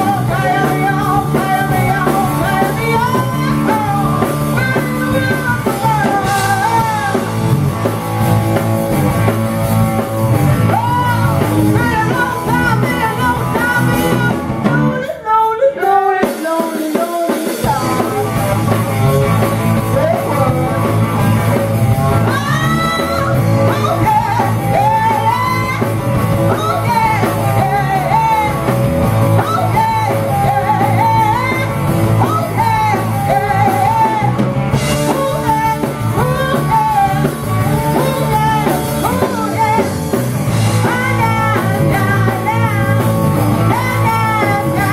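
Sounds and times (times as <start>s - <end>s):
woman singing lead: 0.0s - 8.4s, 9.0s - 44.9s
rock band playing: 0.0s - 44.9s.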